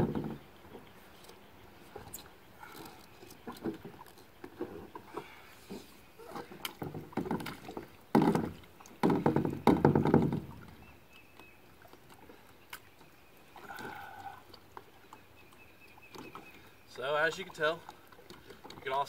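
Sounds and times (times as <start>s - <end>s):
knocks and scrapes on kayak deck: 0.0s - 2.2s, 2.8s - 10.8s.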